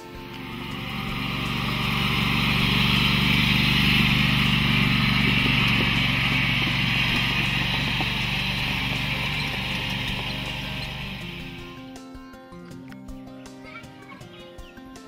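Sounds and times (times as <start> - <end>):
riding lawn tractor engine: 0.0 - 12.0.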